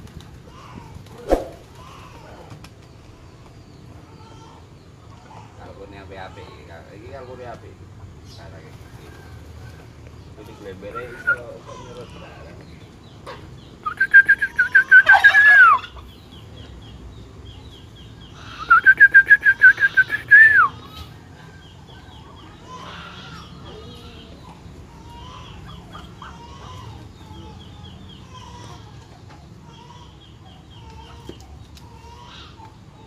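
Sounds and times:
poultry chirping: 3.1s - 33.0s
fowl calling loudly: 10.8s - 12.3s, 13.8s - 16.1s, 18.4s - 21.1s.

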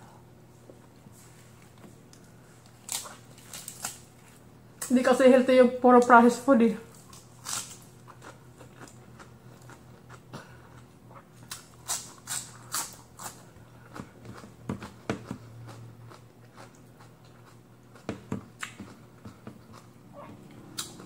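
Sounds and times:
lettuce crunching: 1.7s - 4.4s, 6.9s - 21.0s.

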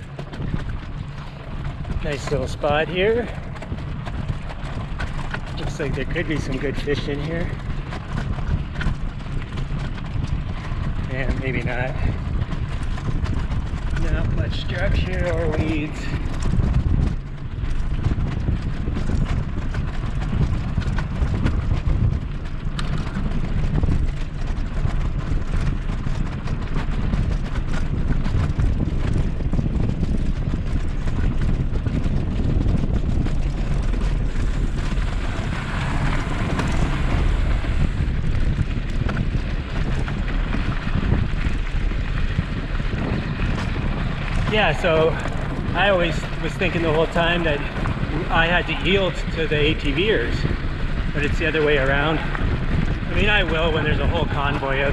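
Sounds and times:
wooden deck clicks and clatters: 0.0s - 2.1s, 15.5s - 44.5s
bicycle tyres rolling on wooden bridge: 0.0s - 54.9s
tyres rolling on gravel: 0.0s - 54.9s
wind buffeting microphone: 0.0s - 54.9s.

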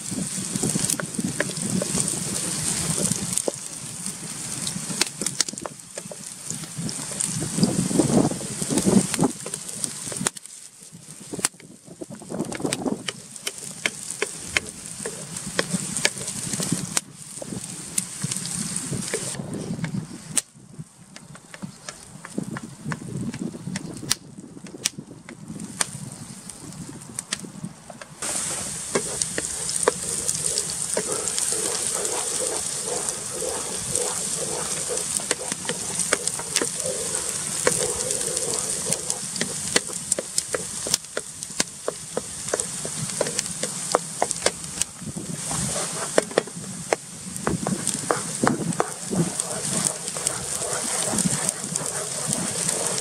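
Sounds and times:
onion sizzling in a frying pan: 0.0s - 20.4s, 25.4s - 53.0s
wooden spoon scraping a pan: 28.2s - 44.6s, 45.3s - 53.0s.

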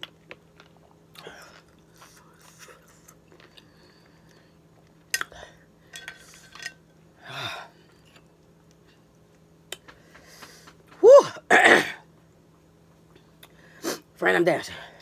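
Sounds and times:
woman squealing: 11.0s - 11.4s
woman coughing harshly: 11.5s - 12.0s.

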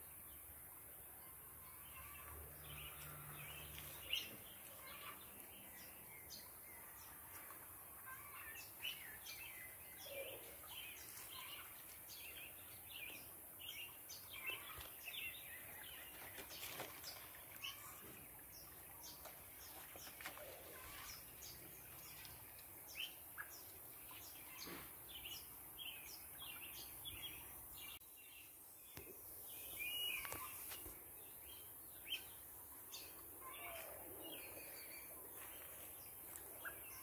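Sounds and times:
small birds chirping: 1.2s - 37.0s.

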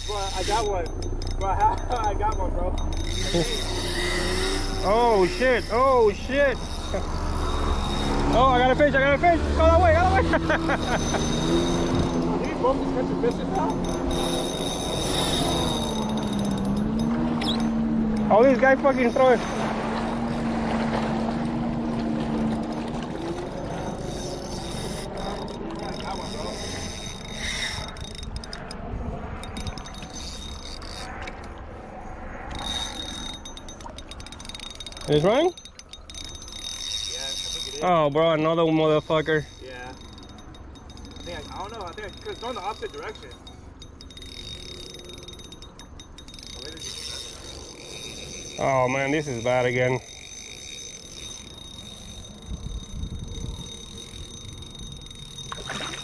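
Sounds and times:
fishing reel clicking: 0.0s - 56.0s
low rumbles: 0.0s - 56.0s
water moving around kayak: 1.6s - 37.8s, 46.2s - 56.0s.

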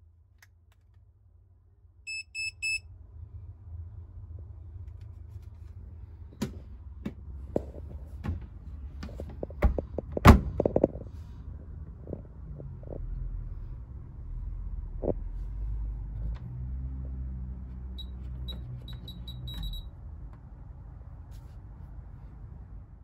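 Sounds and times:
thermometer beeping: 2.1s - 2.8s, 18.0s - 19.9s.

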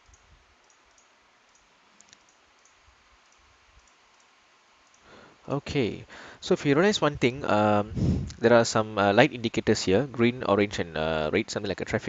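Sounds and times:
faint computer mouse clicks: 0.0s - 5.1s.

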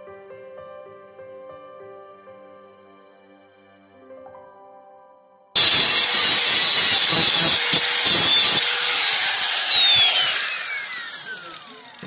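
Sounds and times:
angle grinder grinding steel: 5.6s - 12.0s
grinder disc spinning down: 5.6s - 12.0s.

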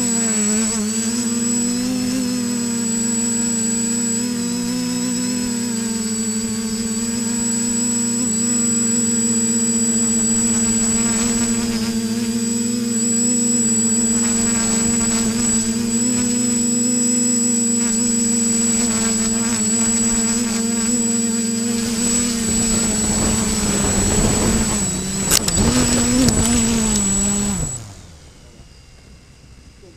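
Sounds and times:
drone motors humming: 0.0s - 29.9s
high whine: 0.0s - 29.9s
sharp click: 25.2s - 27.2s.

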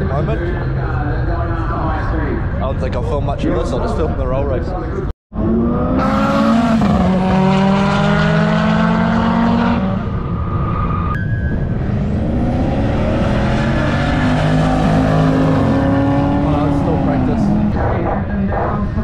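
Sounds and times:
racing cars accelerating: 5.4s - 19.0s.

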